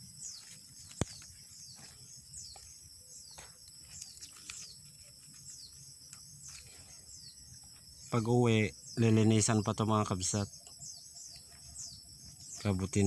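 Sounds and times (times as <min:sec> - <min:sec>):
rustling leaf litter and grass: 0:00.0 - 0:09.2
falling bird chirps: 0:00.0 - 0:13.0
high-pitched insect drone: 0:00.0 - 0:13.0.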